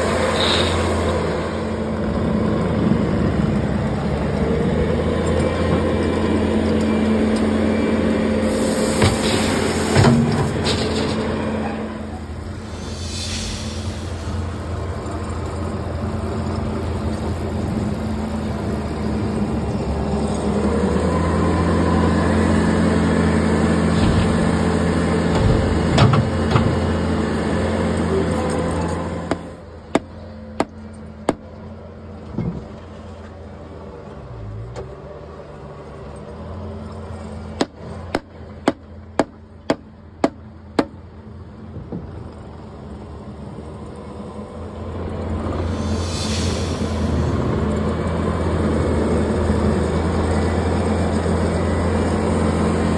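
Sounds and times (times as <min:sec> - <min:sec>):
mixer engine running: 0:00.0 - 0:32.2
powder pouring hiss: 0:08.4 - 0:10.0, 0:12.6 - 0:15.3, 0:45.6 - 0:47.4.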